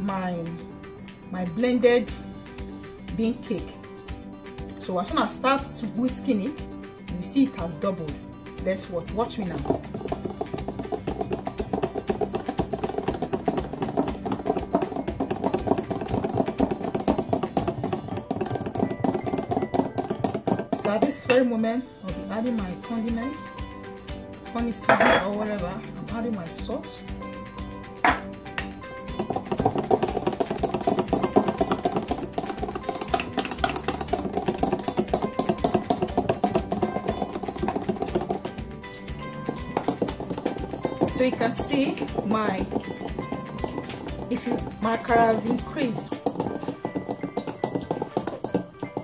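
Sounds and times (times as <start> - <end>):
batter whisked in glass bowl: 7.5 - 21.4, 28.9 - 49.0
glass dish clinking on counter: 24.9 - 25.3, 28.0 - 28.3.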